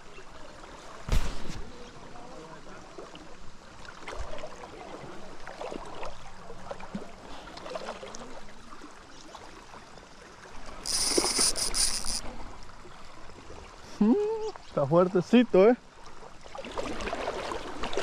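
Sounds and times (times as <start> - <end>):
river water running: 0.0 - 18.0
fishing reel drag buzzing: 10.8 - 12.3.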